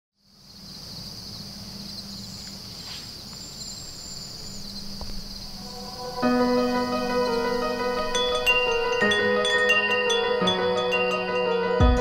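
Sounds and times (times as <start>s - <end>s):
crickets chirring: 0.2s - 11.8s
high bird calls: 1.8s - 10.5s.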